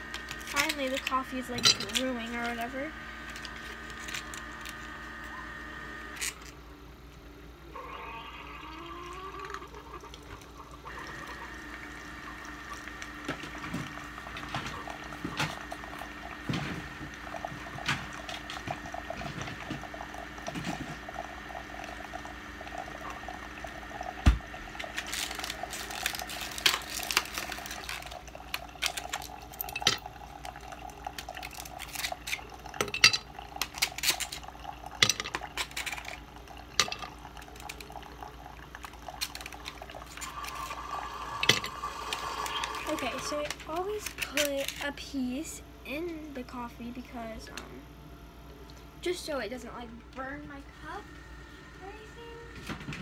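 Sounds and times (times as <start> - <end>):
coffee maker humming: 0.0 - 53.0
dishes and ice clattering: 0.5 - 2.6, 24.9 - 30.2, 31.1 - 37.8, 41.4 - 41.8
water running: 8.1 - 44.1.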